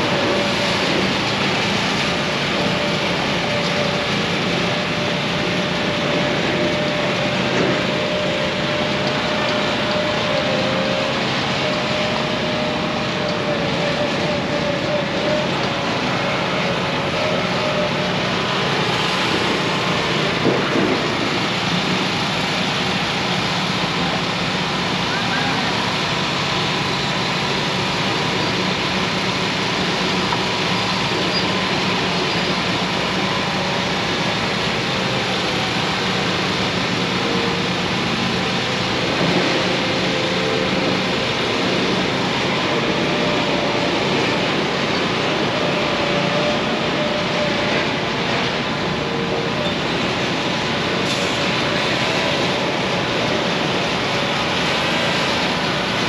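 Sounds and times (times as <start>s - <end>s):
concrete mixer truck drone: 0.0s - 56.0s.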